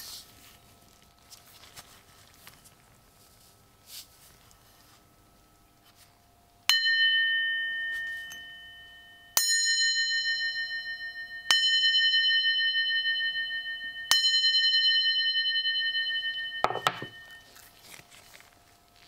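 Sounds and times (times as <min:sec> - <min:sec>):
hammer striking ringing brass casing: 0:06.7 - 0:17.5.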